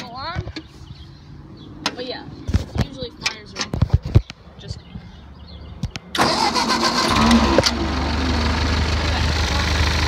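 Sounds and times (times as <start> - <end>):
tractor engine cranking and idling: 5.9 - 10.0.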